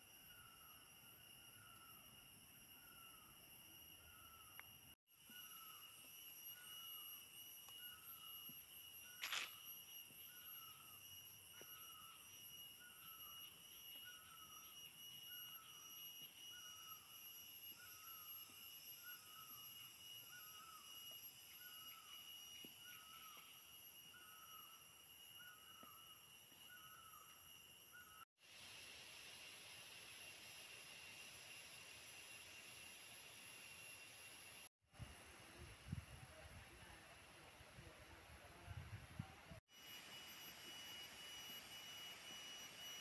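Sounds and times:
insect drone: 0.0s - 43.0s.

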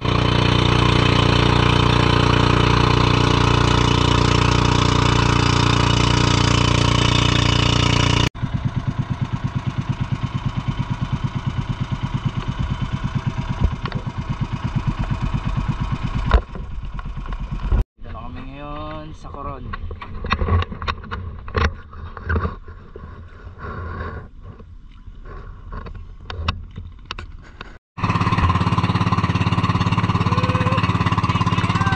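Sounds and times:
small engine running: 0.0s - 17.8s, 28.0s - 31.9s.

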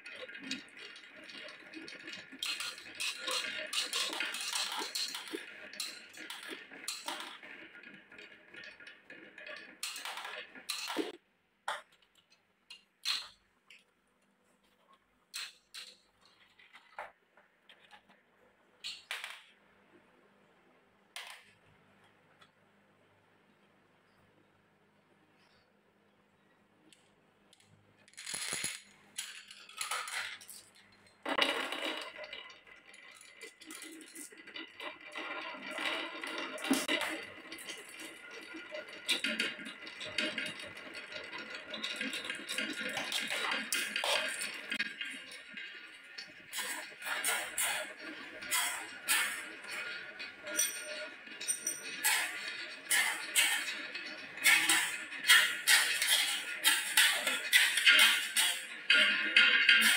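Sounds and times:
glass marbles clicking and clattering: 0.0s - 12.0s, 12.7s - 13.4s, 18.8s - 19.5s, 28.0s - 59.9s.

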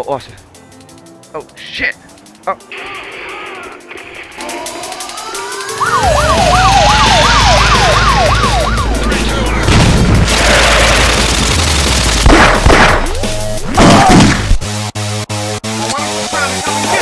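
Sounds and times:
siren winding up: 2.9s - 9.7s
police siren yelp: 5.0s - 9.7s, 16.0s - 17.0s
sharp bangs: 6.0s - 14.6s
loud low rumble: 7.2s - 11.7s.

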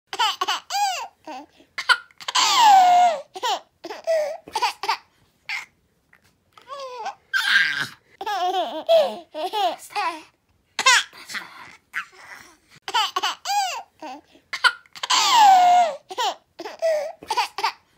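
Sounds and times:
baby squealing: 2.3s - 3.2s, 6.7s - 8.0s, 15.0s - 16.9s
baby giggling and laughing: 6.6s - 10.2s, 11.9s - 17.8s.

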